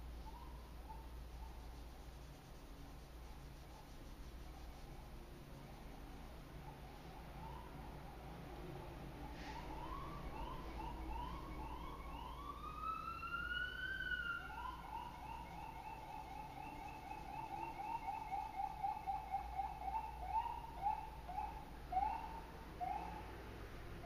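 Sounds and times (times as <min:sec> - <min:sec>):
siren wailing and yelping: 0:06.7 - 0:08.2, 0:09.2 - 0:23.4.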